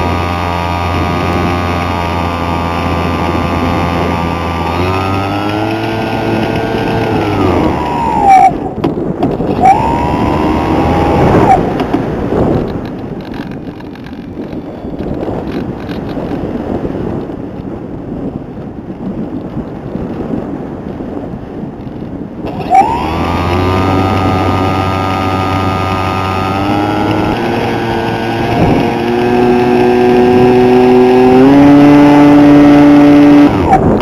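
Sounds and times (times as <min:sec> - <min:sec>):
rc aircraft motor whine: 0:00.0 - 0:08.8, 0:09.4 - 0:12.0, 0:22.4 - 0:34.0.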